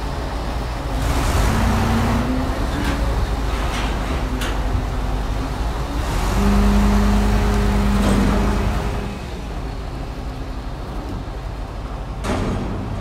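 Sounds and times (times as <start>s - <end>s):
car engine driving off: 0.9s - 10.2s.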